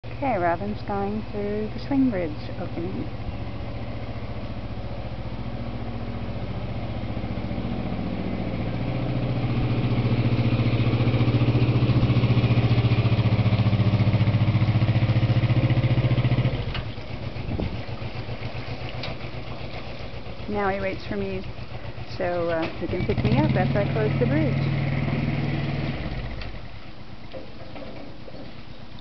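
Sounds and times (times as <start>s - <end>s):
boat engine running: 0.0s - 29.0s.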